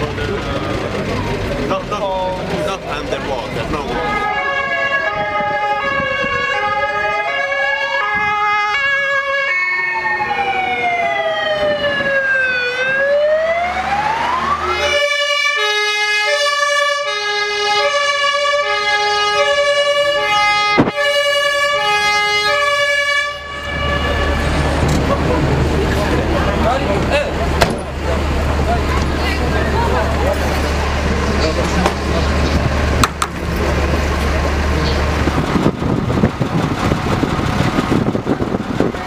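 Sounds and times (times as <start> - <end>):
street noise: 0.0 - 39.0
hi-lo siren: 4.0 - 24.8
wailing siren: 4.0 - 25.4.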